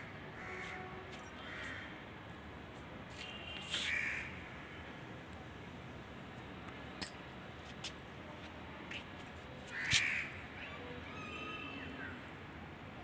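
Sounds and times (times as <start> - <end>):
crow cawing: 0.4 - 0.8, 1.4 - 1.9, 3.9 - 4.4, 9.7 - 10.3.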